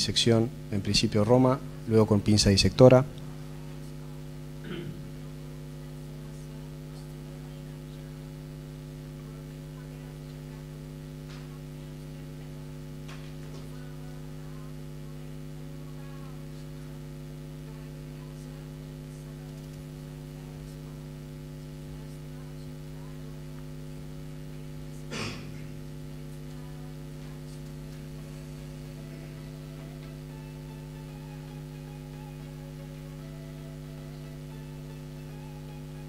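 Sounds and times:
electrical mains hum: 0.0s - 36.0s.

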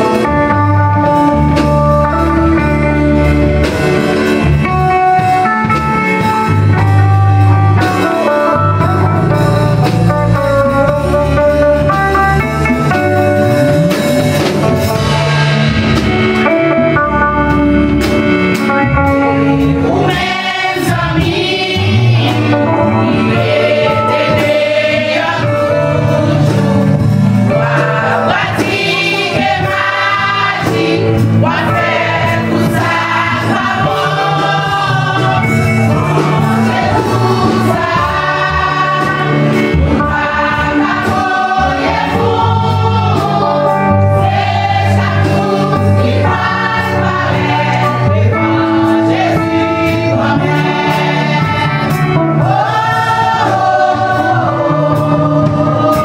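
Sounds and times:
conga drums: 0.0s - 56.0s
drum kit: 0.0s - 56.0s
keyboard: 0.0s - 56.0s
choir singing: 19.5s - 56.0s.

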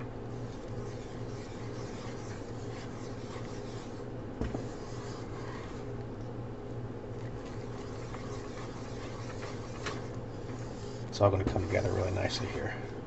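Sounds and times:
steady low hum: 0.0s - 13.0s
wooden spoon scraping a pan: 7.4s - 12.7s.

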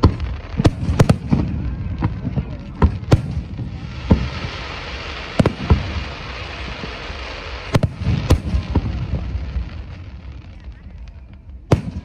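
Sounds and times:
small firework pops: 0.0s - 4.4s, 5.4s - 6.1s, 7.6s - 12.0s
firework booms: 0.0s - 12.0s
steady hiss: 3.2s - 11.5s.

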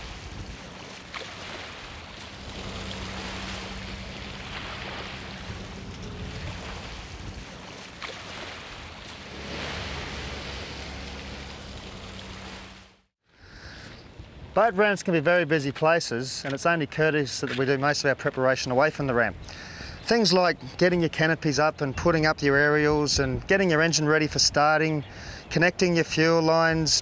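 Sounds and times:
wind buffeting microphone: 0.0s - 12.8s
small waves washing on shore: 0.0s - 13.1s
vehicle engine humming: 0.0s - 13.1s.

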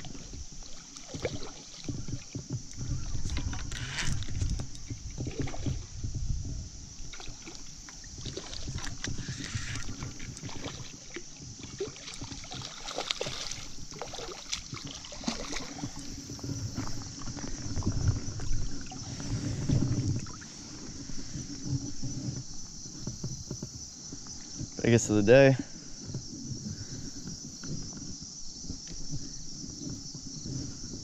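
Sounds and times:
water sloshing and splashing: 0.0s - 30.8s.

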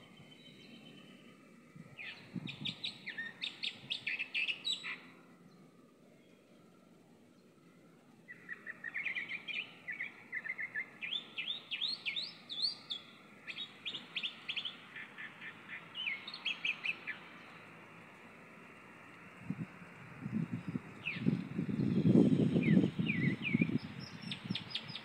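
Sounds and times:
mockingbird singing: 2.0s - 5.3s, 8.3s - 17.7s, 20.4s - 25.0s.

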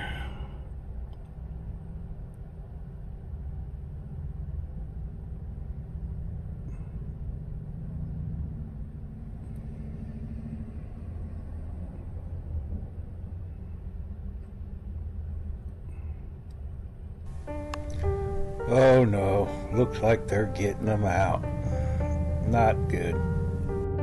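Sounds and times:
vehicle engine idling: 17.3s - 24.0s.

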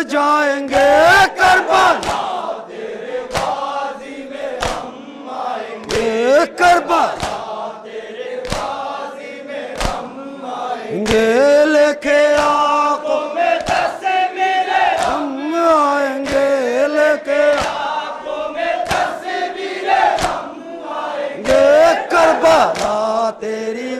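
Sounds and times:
men chanting in unison: 0.0s - 23.9s
hands striking chest: 2.0s - 2.3s, 3.3s - 3.6s, 4.6s - 4.9s, 7.2s - 7.5s, 8.4s - 8.8s, 9.8s - 10.0s.

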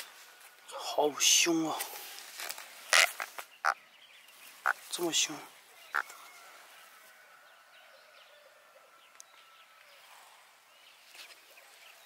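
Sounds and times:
distant birds chirping: 2.5s - 12.0s.

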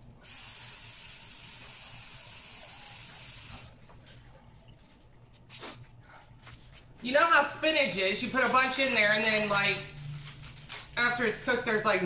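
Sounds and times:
kitchen tap running: 0.2s - 3.8s.

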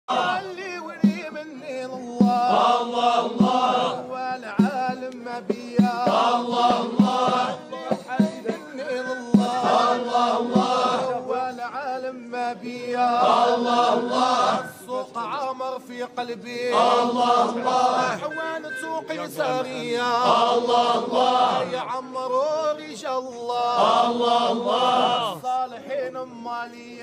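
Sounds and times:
men singing a devotional chant: 0.1s - 27.0s
low drum beat: 2.2s - 4.0s, 4.6s - 8.6s, 9.4s - 11.1s.

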